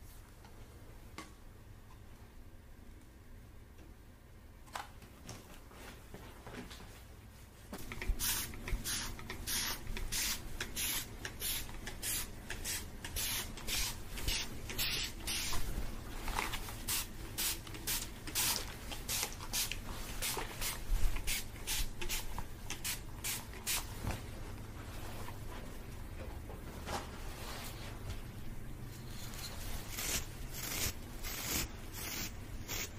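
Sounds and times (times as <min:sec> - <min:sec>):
spray bottle hissing bursts: 0:08.0 - 0:15.6, 0:16.8 - 0:23.8, 0:30.0 - 0:32.9.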